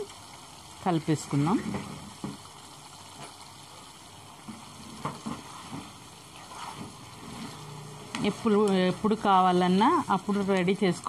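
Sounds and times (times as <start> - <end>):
gravy simmering and bubbling: 0.0 - 11.0
spoon scraping a pan: 4.5 - 7.8.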